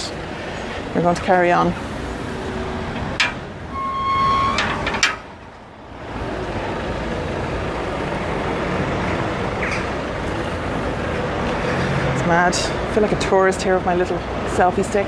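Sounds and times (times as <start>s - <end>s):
road traffic noise: 0.0s - 15.0s
short steady beep: 3.7s - 4.8s.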